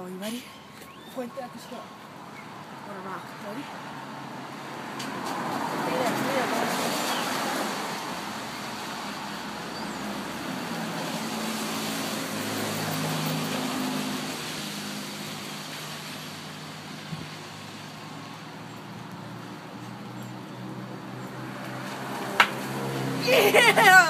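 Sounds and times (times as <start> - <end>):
street traffic hiss: 0.0 - 24.0
vehicle engine hum: 7.7 - 24.0.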